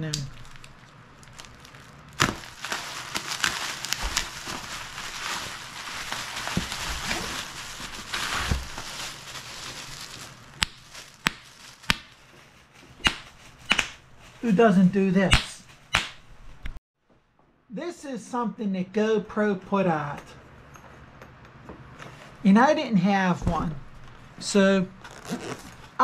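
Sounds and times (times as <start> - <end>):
bubble wrap popping: 0.0 - 12.3
plastic packaging crackling: 0.0 - 14.5.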